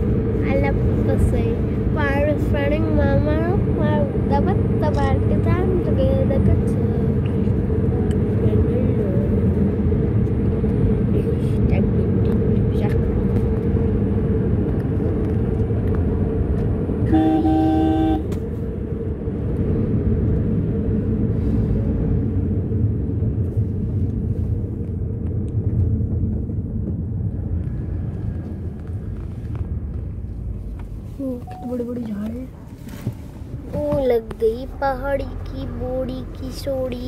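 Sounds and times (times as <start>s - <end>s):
vehicle engine and road rumble: 0.0s - 37.0s
car horn honking: 17.1s - 18.4s.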